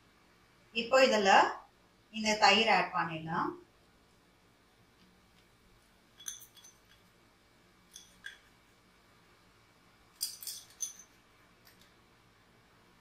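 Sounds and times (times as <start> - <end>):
metal spoon clinking on glass bowl: 6.2 - 7.1, 7.9 - 8.5, 10.2 - 11.2.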